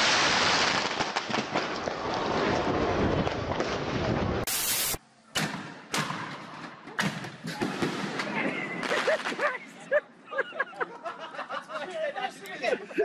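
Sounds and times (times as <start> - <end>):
firework hissing and crackling: 0.0 - 5.0.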